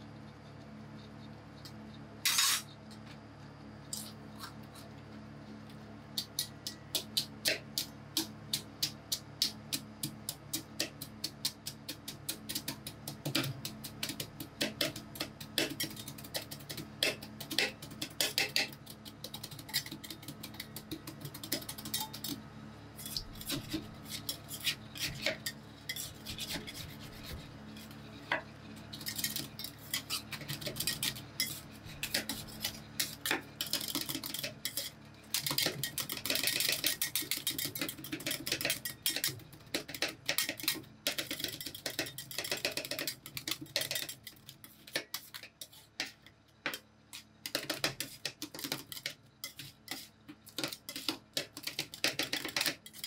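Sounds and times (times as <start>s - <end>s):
spatula scraping steel plate: 2.3s - 2.7s, 23.0s - 39.3s.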